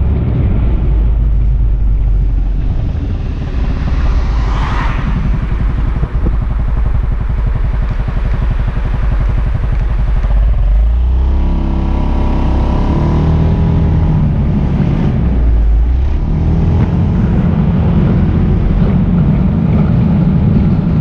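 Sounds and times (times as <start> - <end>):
scooter engine pulsing: 1.2 - 16.0.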